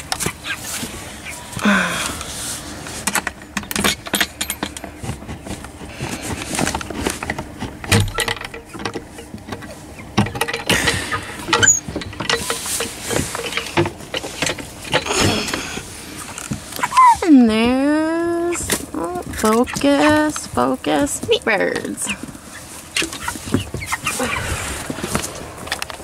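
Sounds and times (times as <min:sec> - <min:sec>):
rustling: 0:11.6 - 0:26.0.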